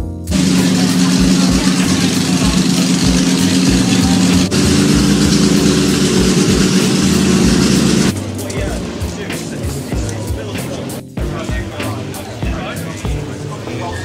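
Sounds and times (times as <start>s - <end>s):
racing car engine idling: 0.3s - 8.1s.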